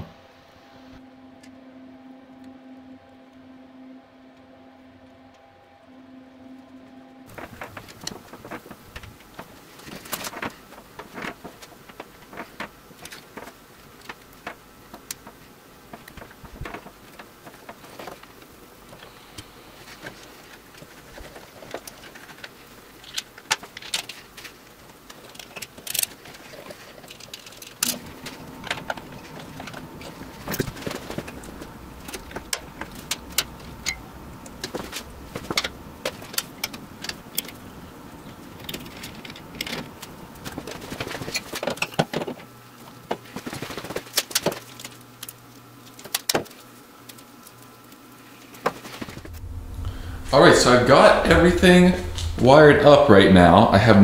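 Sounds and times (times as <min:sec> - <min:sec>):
low steady hum: 0:00.0 - 0:54.0
clicks and taps of wiring work: 0:07.3 - 0:37.6, 0:43.1 - 0:49.3.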